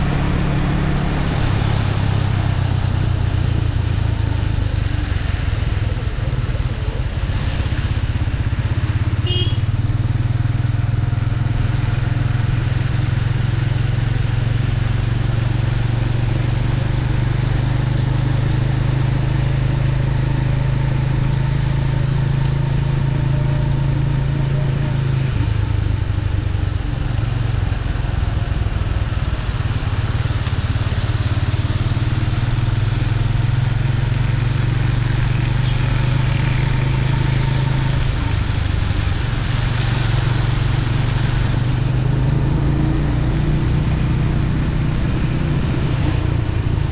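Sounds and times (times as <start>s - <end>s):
motorcycle engine drone: 0.0s - 46.9s
tyres hissing on wet road: 10.6s - 46.8s.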